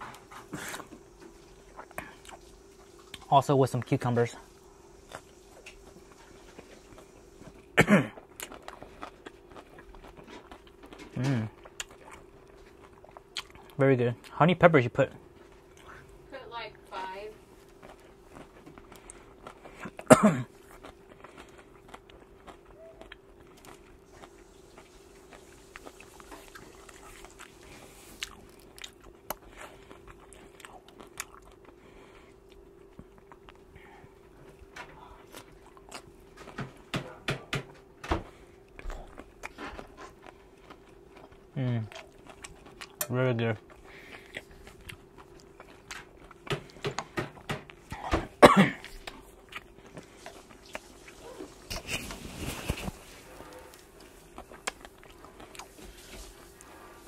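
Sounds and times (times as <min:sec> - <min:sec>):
faint steady hum: 0:00.0 - 0:57.0
chewing and biting: 0:05.0 - 0:14.4, 0:17.6 - 0:36.9, 0:38.6 - 0:48.0, 0:48.8 - 0:57.0
man coughing: 0:07.8 - 0:08.2, 0:20.0 - 0:20.5, 0:48.0 - 0:48.9
wet mouth sounds: 0:54.3 - 0:55.8.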